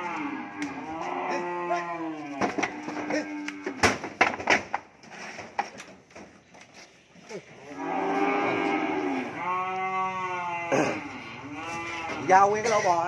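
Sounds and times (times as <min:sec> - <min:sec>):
cow mooing: 0:00.0 - 0:03.8, 0:07.7 - 0:12.5.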